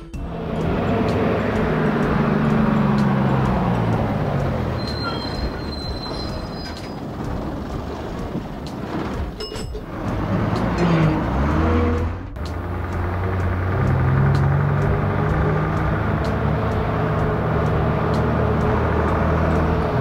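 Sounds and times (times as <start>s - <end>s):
bus engine: 0.0s - 20.0s
high brake squeal: 2.7s - 7.3s.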